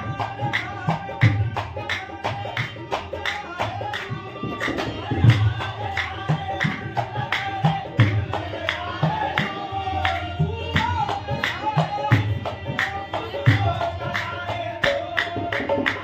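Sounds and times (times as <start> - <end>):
dholak drum beat: 0.0 - 16.0
men singing: 0.0 - 16.0
hand-clapping: 0.1 - 16.0.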